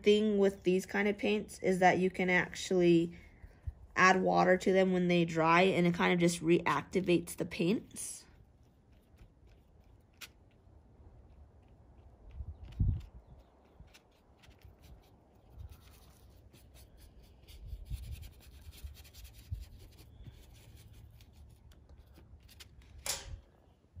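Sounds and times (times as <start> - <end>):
paintbrush scratching on paper: 8.3 - 10.4, 13.9 - 21.7.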